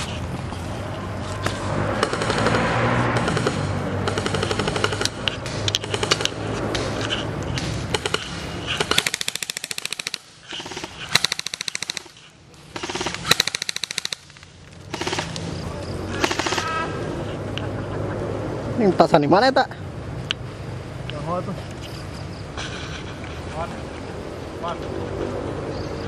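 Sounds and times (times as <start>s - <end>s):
airsoft rifles firing bursts: 1.4s - 7.0s, 7.6s - 15.4s, 16.1s - 16.8s.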